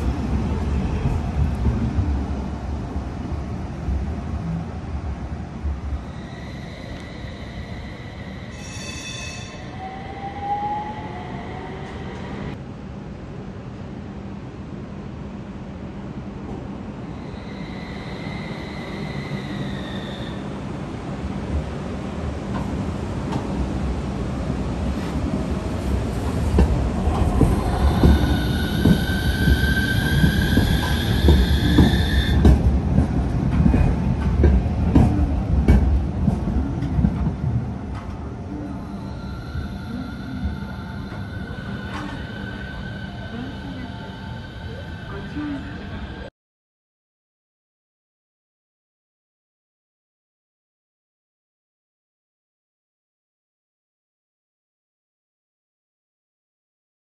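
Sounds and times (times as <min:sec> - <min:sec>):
tram passing with low rumble: 0:00.0 - 0:46.3
brief high squeal: 0:08.5 - 0:09.8
tram motor whine: 0:25.7 - 0:46.3
steady high tone: 0:38.5 - 0:46.3.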